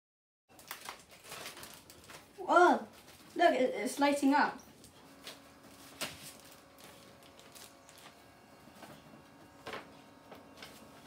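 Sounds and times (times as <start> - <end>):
back massager humming: 3.7 - 11.0.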